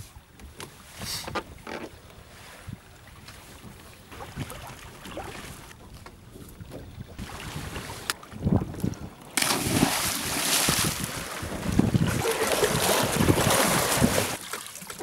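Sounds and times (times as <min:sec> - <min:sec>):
rush of wind and water: 0:00.0 - 0:15.0
wind buffeting microphone: 0:05.2 - 0:14.4.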